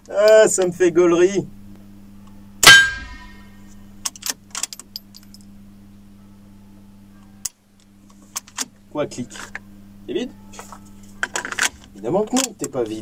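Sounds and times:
rifle shot with ringing tail: 2.6 - 3.5.

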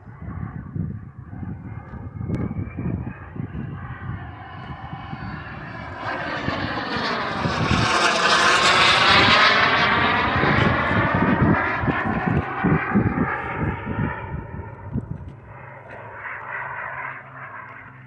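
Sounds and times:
model jet engine rush: 0.0 - 18.0
wind buffeting microphone: 0.0 - 18.0.

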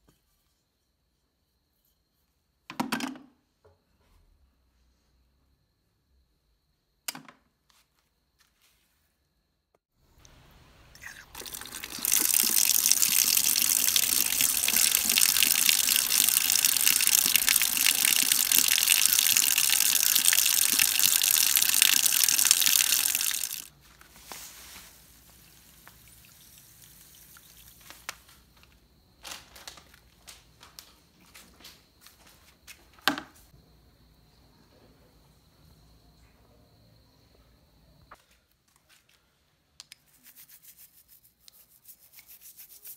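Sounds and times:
water pouring into plastic bucket: 10.9 - 23.7.

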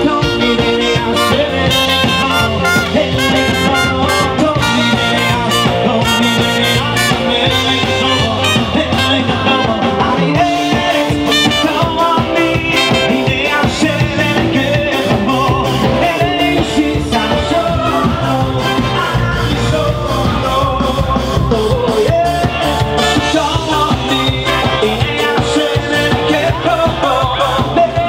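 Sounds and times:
brass: 0.0 - 15.1, 15.7 - 21.0
drums: 0.0 - 28.0
electric bass: 0.0 - 28.0
keyboard: 0.0 - 28.0
person singing: 0.0 - 28.0.

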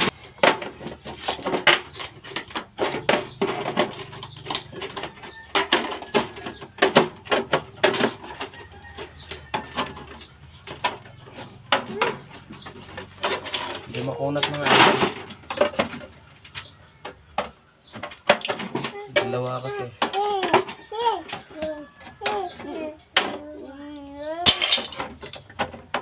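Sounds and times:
sheet metal rattling: 24.4 - 26.0.

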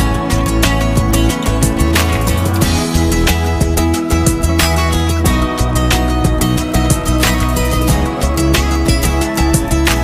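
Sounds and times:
background music with beat: 0.0 - 10.0.

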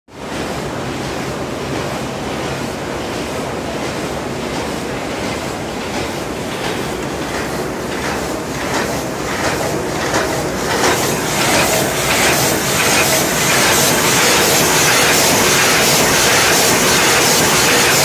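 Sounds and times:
forging machine clattering: 6.6 - 18.0.

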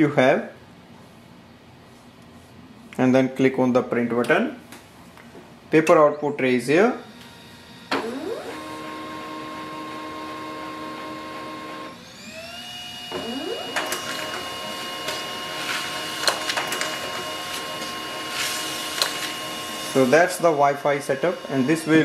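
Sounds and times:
printer motors humming: 7.0 - 22.0
paper feeding clicks: 13.8 - 22.0.

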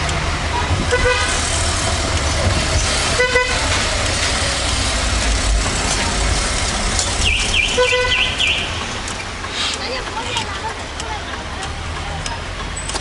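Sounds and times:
engine and tyres rumbling: 0.0 - 13.0
car horns honking: 0.5 - 1.6, 3.0 - 3.9, 7.2 - 9.0.

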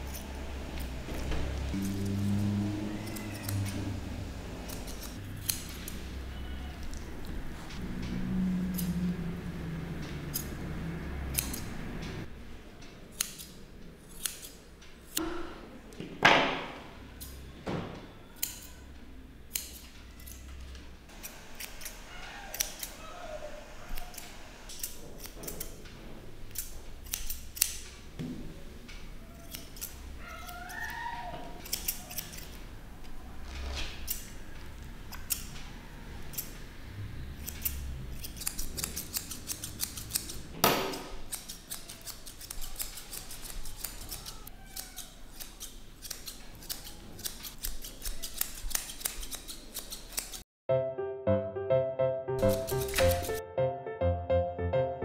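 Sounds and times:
scissors snipping fur: 0.0 - 0.9, 1.7 - 2.2, 3.0 - 4.0, 4.7 - 7.4, 11.3 - 11.8, 13.1 - 15.2, 18.4 - 18.8, 19.5 - 20.6, 21.2 - 25.8, 26.5 - 28.0, 29.3 - 33.2, 34.0 - 34.3, 35.1 - 35.6, 36.2 - 36.6, 37.4 - 50.4, 52.4 - 53.4.

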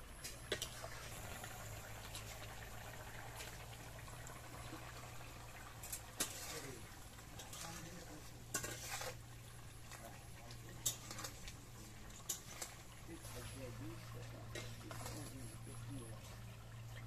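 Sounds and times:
spoon scraping metal pot: 5.8 - 10.1, 10.7 - 13.8, 14.4 - 16.3.

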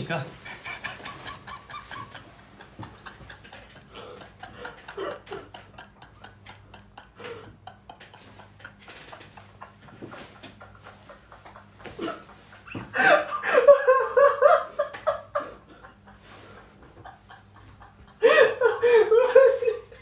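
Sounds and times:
low electrical hum: 0.0 - 20.0
man's breathless laughter: 2.8 - 13.9, 15.4 - 20.0.

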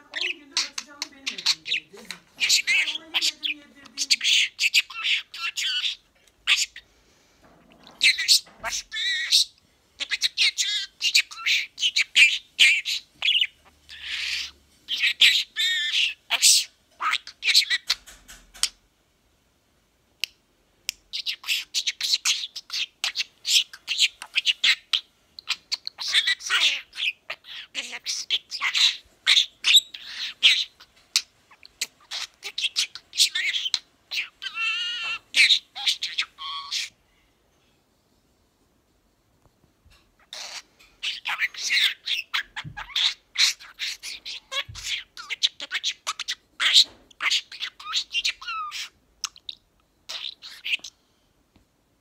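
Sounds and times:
budgerigar chattering: 0.0 - 6.8, 21.1 - 36.9, 40.2 - 50.9.

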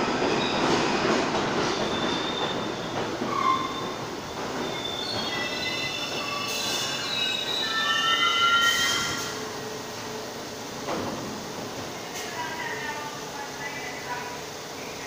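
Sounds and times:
steel wheels rumbling on rail: 0.0 - 15.0
wheels and brakes squealing: 1.7 - 4.0, 4.6 - 9.4.

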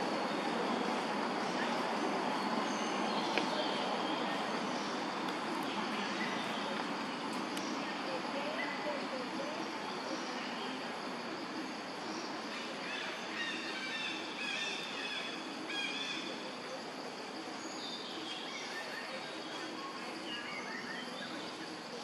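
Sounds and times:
birds chirping: 0.0 - 16.5
steady background hiss: 0.0 - 22.0.

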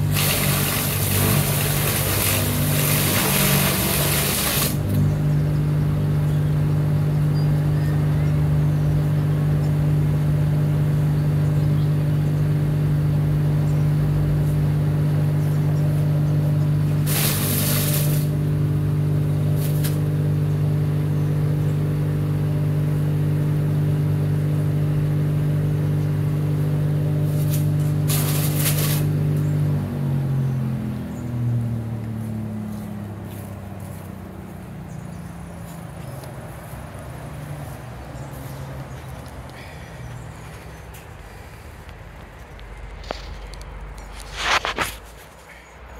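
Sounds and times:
motor winding down: 0.0 - 5.4
wood chipper humming: 0.0 - 45.6
brief hissing bursts: 17.0 - 18.4, 27.4 - 29.1.

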